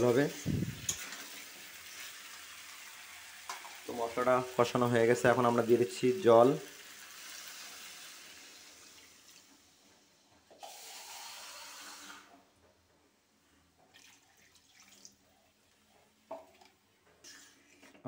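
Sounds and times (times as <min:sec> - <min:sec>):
water pouring into a metal pot: 0:00.0 - 0:09.5, 0:10.6 - 0:12.3, 0:13.9 - 0:15.2.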